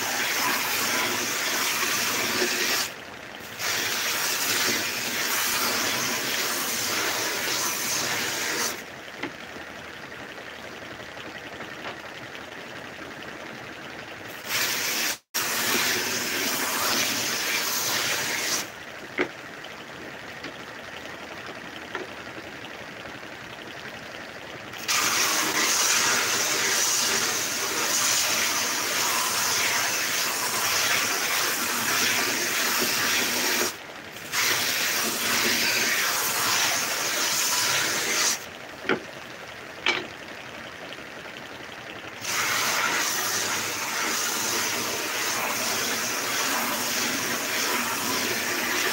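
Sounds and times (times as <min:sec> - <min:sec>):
belt sander hissing on wood: 0:24.8 - 0:38.4, 0:42.2 - 0:48.9.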